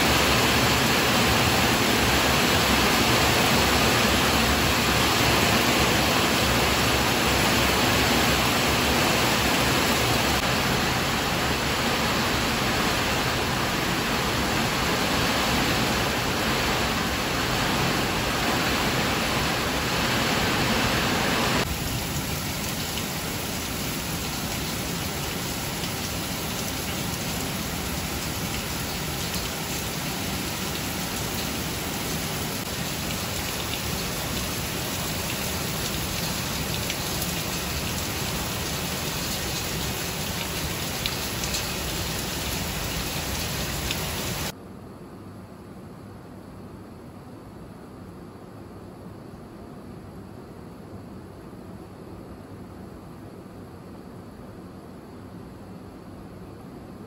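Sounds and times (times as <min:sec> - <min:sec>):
heavy rain falling: 0:00.0 - 0:44.5.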